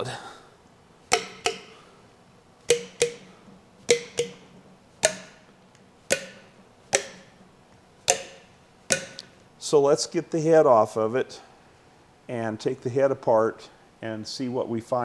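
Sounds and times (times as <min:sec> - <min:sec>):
engine valves clacking: 0:01.0 - 0:01.9, 0:02.6 - 0:09.4.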